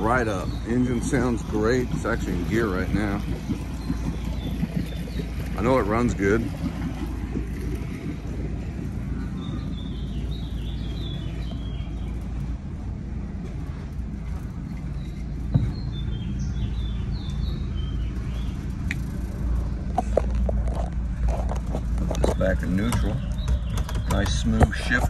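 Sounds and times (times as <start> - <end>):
small birds chirping: 0.0 - 12.6, 14.0 - 25.0
boat engine idling: 0.0 - 25.0.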